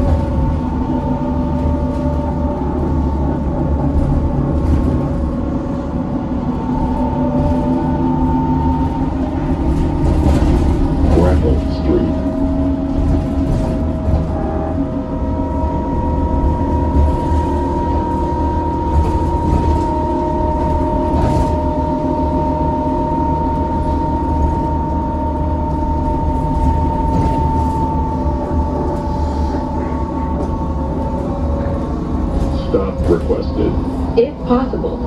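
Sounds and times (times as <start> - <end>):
road and body rumble: 0.0 - 35.0.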